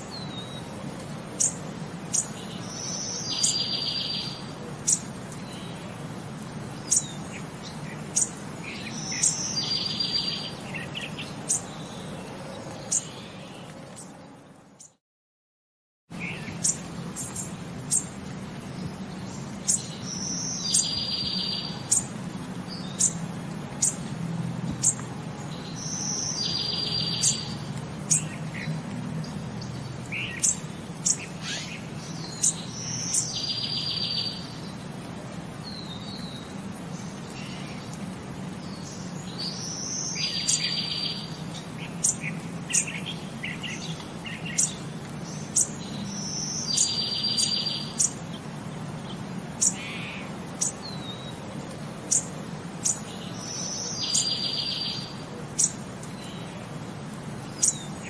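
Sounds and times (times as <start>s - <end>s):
birds chirping: 0.0s - 15.0s, 16.1s - 58.0s.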